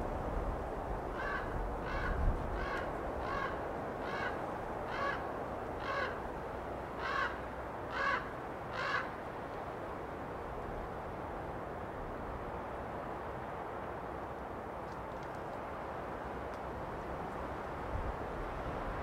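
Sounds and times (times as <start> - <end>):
wind in pine trees: 0.0 - 19.0
raven cawing: 1.1 - 6.3, 6.9 - 9.2.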